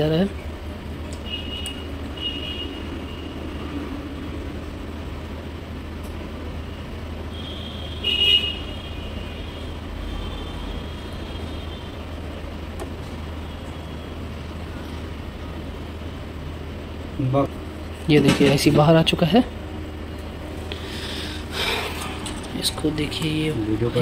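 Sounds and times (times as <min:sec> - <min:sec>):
hot-air rework station blowing: 0:00.0 - 0:24.0
street traffic: 0:00.0 - 0:24.0
vehicle horn honking: 0:01.2 - 0:03.7, 0:07.3 - 0:12.0.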